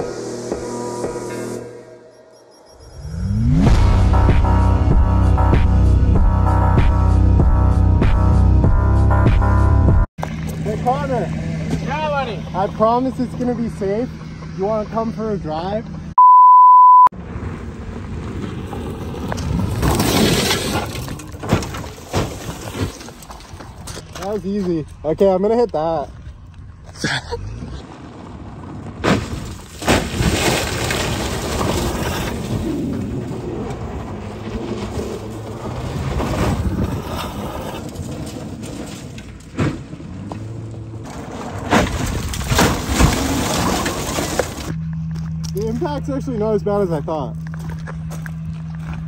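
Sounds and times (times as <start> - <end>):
tyres sliding over gravel: 18.1 - 26.4, 27.8 - 44.8
tyres spraying gravel: 41.1 - 44.7.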